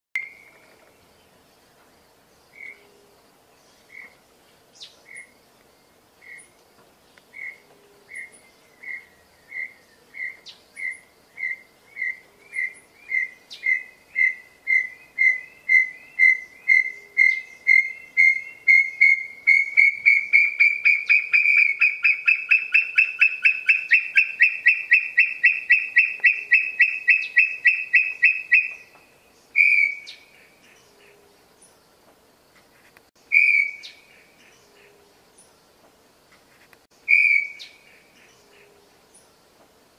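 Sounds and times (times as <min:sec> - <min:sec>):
bird whistling into a trill: 0:12.6 - 0:28.8, 0:33.3 - 0:33.9, 0:37.1 - 0:37.7.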